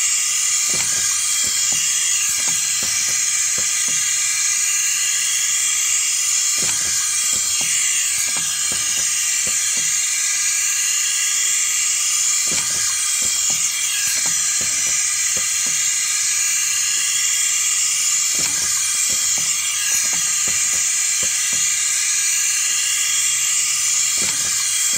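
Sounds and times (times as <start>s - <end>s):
steady loud hiss: 0.0s - 24.9s.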